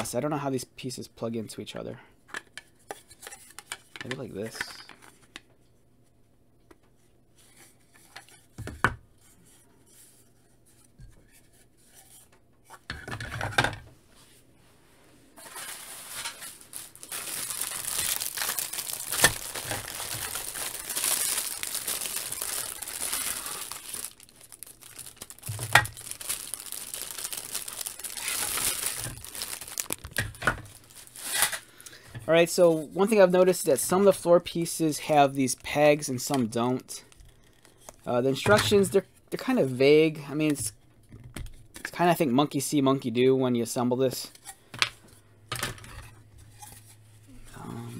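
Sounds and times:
plastic bag crinkling: 15.4s - 31.7s.

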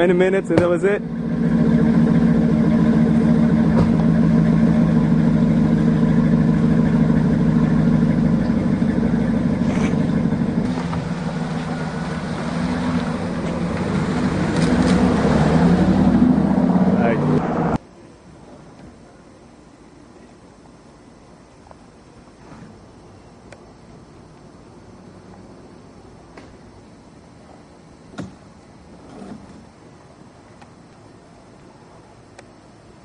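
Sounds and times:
car engine idling: 0.0s - 17.8s.

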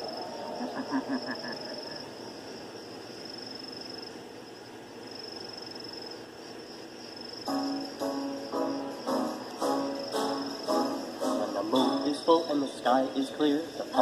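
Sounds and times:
background hum: 0.0s - 14.0s
insects trilling: 0.0s - 14.0s
people laughing: 0.6s - 2.1s.

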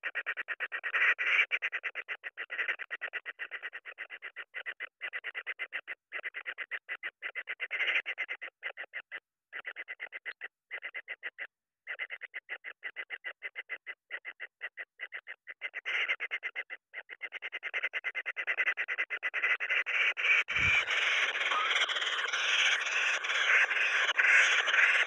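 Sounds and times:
kingfisher nestlings begging: 20.0s - 25.0s.

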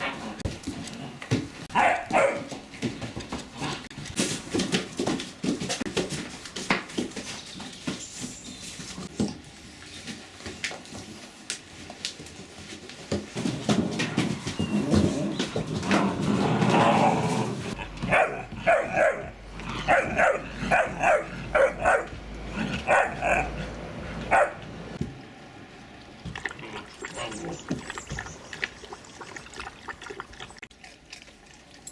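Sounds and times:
puppies scuffling: 0.0s - 18.5s
puppy barking: 1.7s - 2.5s, 18.0s - 23.6s, 24.3s - 24.7s.

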